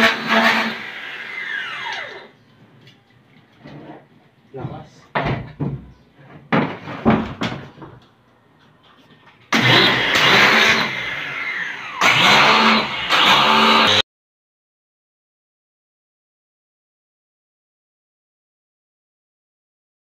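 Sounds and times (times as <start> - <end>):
pressure washer motor running: 9.6 - 14.0.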